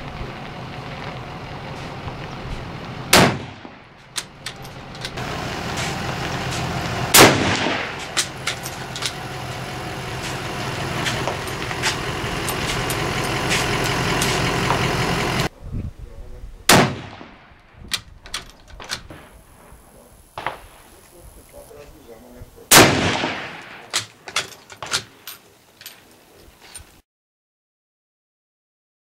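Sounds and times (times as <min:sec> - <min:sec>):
rifle shots: 0:03.1 - 0:04.4, 0:07.1 - 0:09.2, 0:16.7 - 0:17.6, 0:22.7 - 0:24.1.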